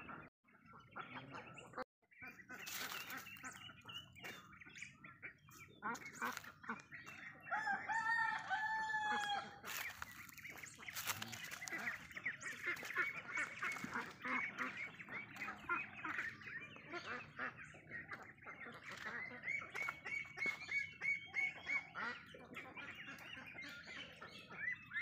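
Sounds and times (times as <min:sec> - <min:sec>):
ducks quacking: 0:00.0 - 0:25.0
rooster crowing: 0:07.5 - 0:09.6.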